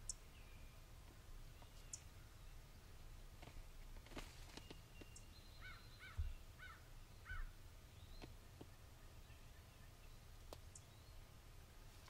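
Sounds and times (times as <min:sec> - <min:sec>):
distant bird calling: 0:04.5 - 0:11.4.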